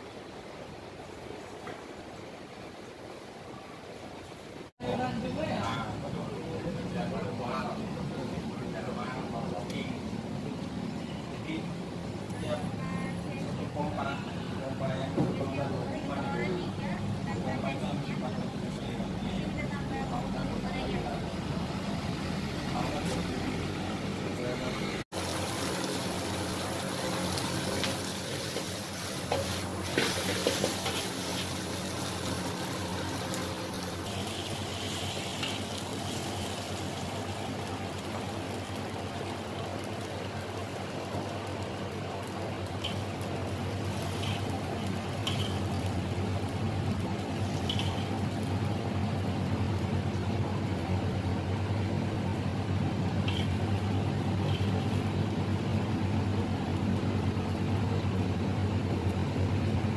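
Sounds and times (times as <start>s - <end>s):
kitchen equipment humming: 10.0s - 59.9s
metal spatula clattering on wok: 45.2s - 45.6s.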